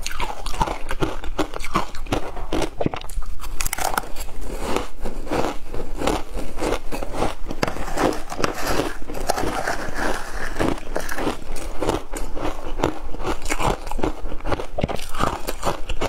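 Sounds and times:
ice crunching and chewing: 0.0s - 16.0s
metal spoon scraping ice: 6.0s - 12.8s.

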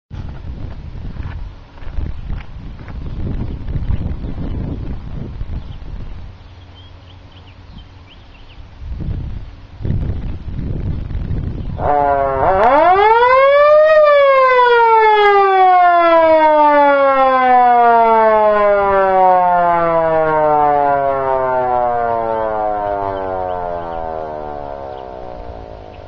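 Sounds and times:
electric siren wailing: 11.7s - 26.0s.

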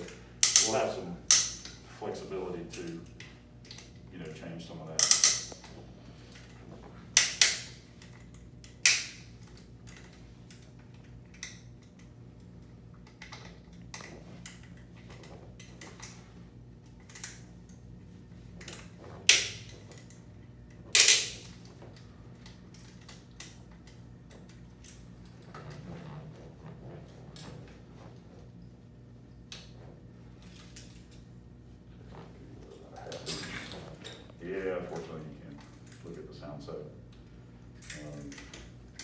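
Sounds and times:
steady low hum: 0.0s - 39.0s
metal clicks from prosthetic leg: 0.4s - 1.8s, 5.0s - 5.7s, 20.9s - 21.6s.

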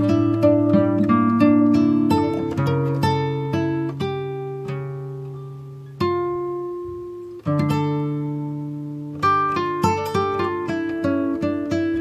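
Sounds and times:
plucked acoustic guitar chords: 0.0s - 12.0s.

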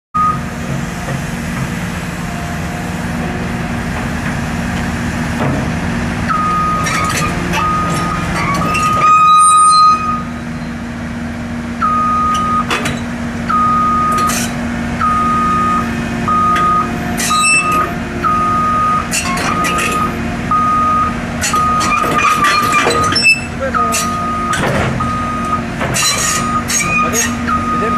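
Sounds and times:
travel alarm beeping: 0.2s - 0.5s, 6.3s - 6.9s, 7.6s - 8.3s, 9.0s - 10.3s, 11.8s - 12.7s, 13.5s - 14.4s, 15.0s - 22.0s, 23.2s - 25.7s, 26.3s - 27.9s
excavator diesel engine running: 0.2s - 27.9s
metal clanks and knocks: 21.4s - 25.0s, 25.8s - 27.4s.

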